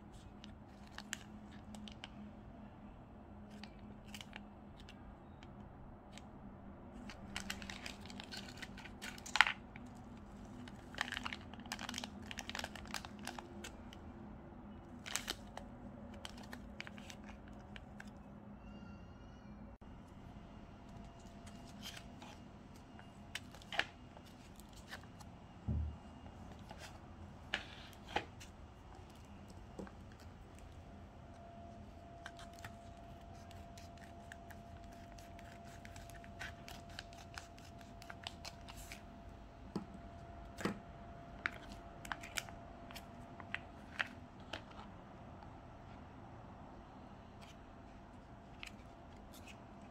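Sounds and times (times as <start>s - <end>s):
foil pouches crinkling: 7.0s - 14.0s, 15.0s - 18.1s, 32.2s - 39.0s
dull thump: 25.7s - 26.0s.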